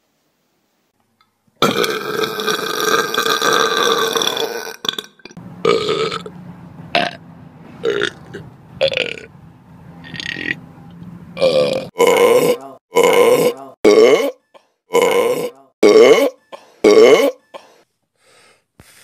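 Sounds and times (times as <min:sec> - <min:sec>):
loud belching: 0:01.6 - 0:06.3, 0:11.4 - 0:17.4.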